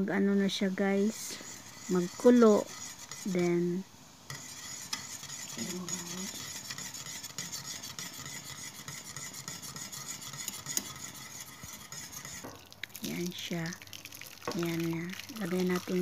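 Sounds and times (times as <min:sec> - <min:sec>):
boiling liquid hiss: 0:00.0 - 0:16.0
spoon scraping a metal pot: 0:00.7 - 0:03.5, 0:04.3 - 0:12.7.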